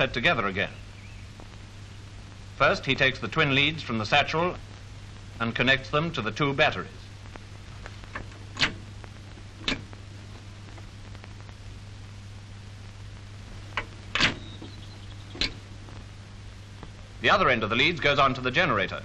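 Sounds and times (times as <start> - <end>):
film hiss: 0.0 - 19.0
steady low hum: 0.0 - 19.0
sharp clicks: 13.7 - 16.1.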